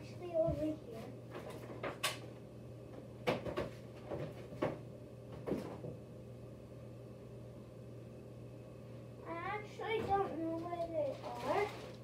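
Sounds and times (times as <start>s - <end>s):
low steady hum: 0.0s - 12.0s
objects knocking and clattering: 3.2s - 6.0s.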